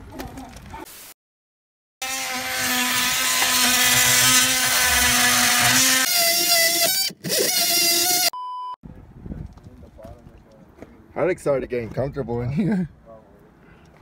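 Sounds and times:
cordless power tool whining: 0:02.0 - 0:08.4.

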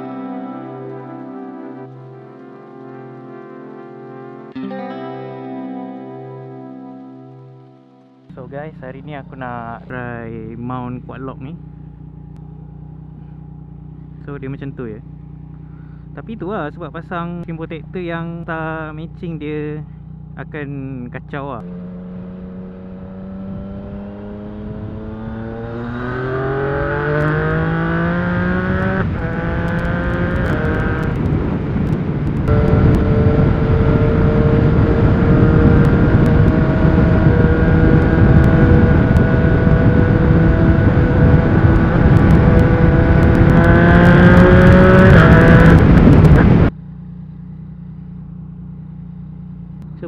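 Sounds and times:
motorcycle engine: 0:00.0 - 0:04.7, 0:07.2 - 0:50.0
wind rush: 0:26.4 - 0:46.7.

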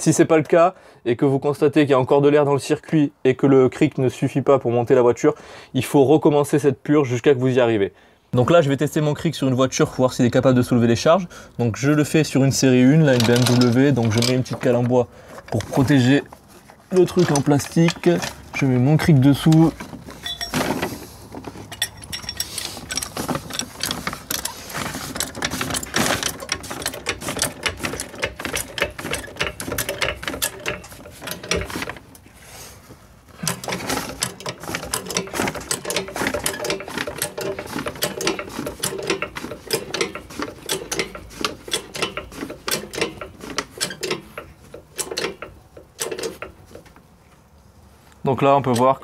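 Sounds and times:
trolley jack pumping and clicking: 0:13.1 - 0:16.0, 0:16.9 - 0:32.3, 0:33.4 - 0:47.1.

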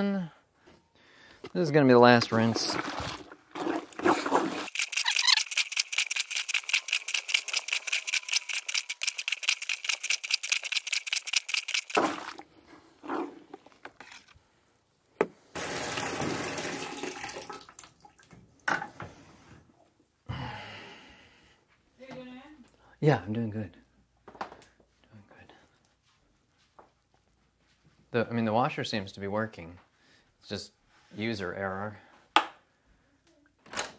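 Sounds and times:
plunger sloshing in water: 0:02.2 - 0:12.4
water splashing: 0:02.2 - 0:12.4.

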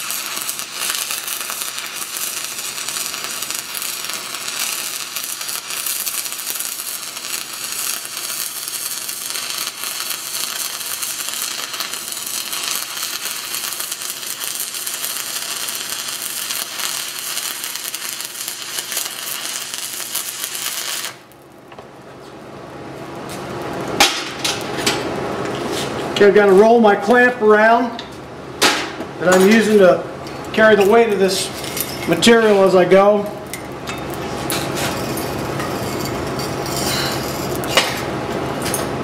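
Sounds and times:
welding arc crackling: 0:00.0 - 0:21.6, 0:30.5 - 0:39.0.

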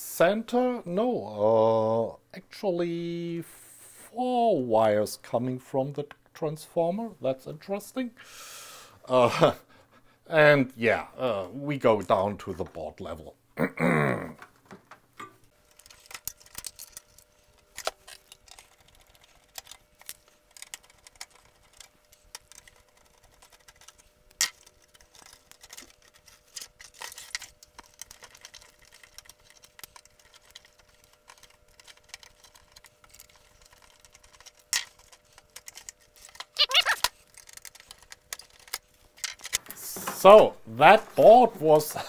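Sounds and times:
circuit board rattling and scraping: 0:15.5 - 0:41.8.

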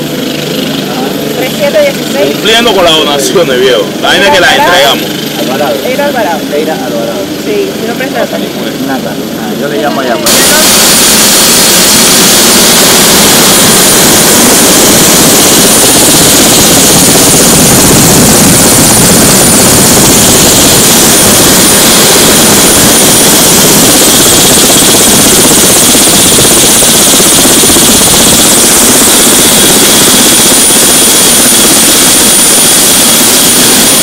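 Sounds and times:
helicopter engine and rotor: 0:00.0 - 0:34.0.

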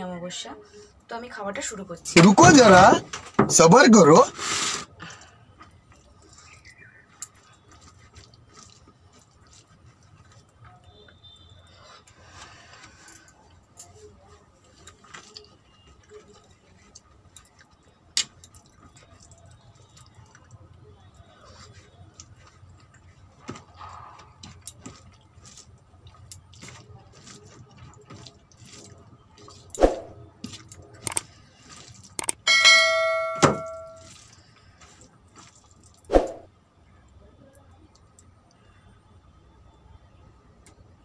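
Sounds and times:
chewing: 0:05.0 - 0:32.4, 0:34.0 - 0:36.1
bell chime: 0:32.5 - 0:34.1.

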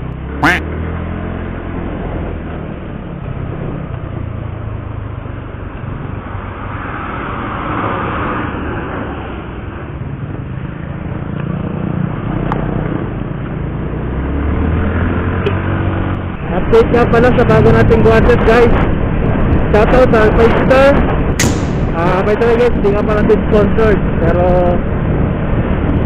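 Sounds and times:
road noise: 0:00.0 - 0:26.0.

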